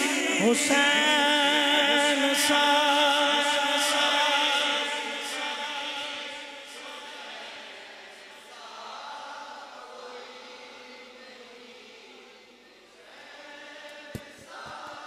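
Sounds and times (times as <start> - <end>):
man singing over loudspeakers: 0.0 - 7.4
group chanting a refrain: 0.0 - 15.0.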